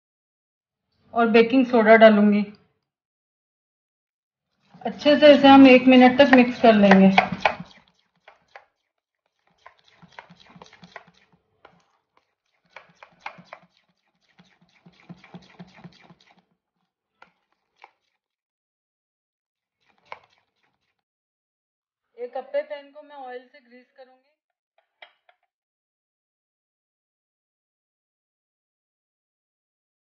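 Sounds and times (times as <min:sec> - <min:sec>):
spoon scraping metal bowl: 0:04.7 - 0:08.8, 0:09.4 - 0:16.4, 0:19.8 - 0:21.0
spoon taps: 0:06.2 - 0:07.7.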